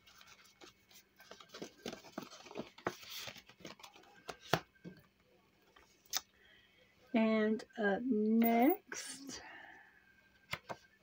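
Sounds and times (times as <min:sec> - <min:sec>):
paper pages rustling: 0:00.0 - 0:04.7.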